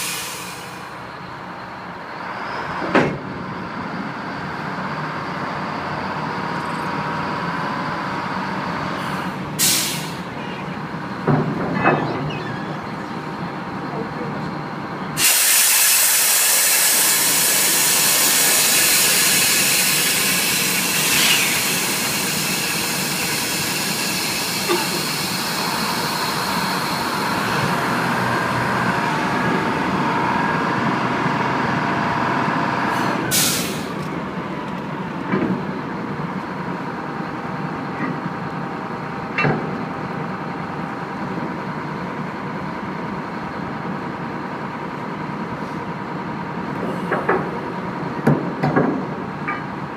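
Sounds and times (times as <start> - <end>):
loud steady hiss: 15.2 - 27.3
machinery drone: 16.0 - 34.6.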